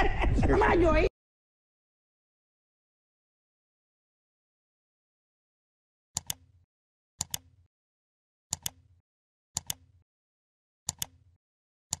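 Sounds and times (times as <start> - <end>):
computer mouse double clicks: 6.2 - 6.5, 7.2 - 7.6, 8.5 - 8.9, 9.6 - 10.0, 10.9 - 12.0.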